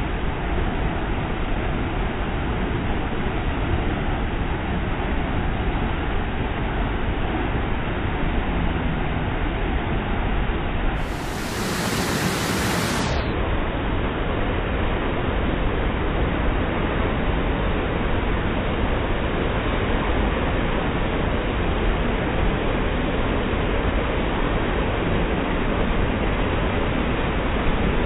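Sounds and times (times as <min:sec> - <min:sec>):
floodwater rushing over rock: 0:11.0 - 0:13.3.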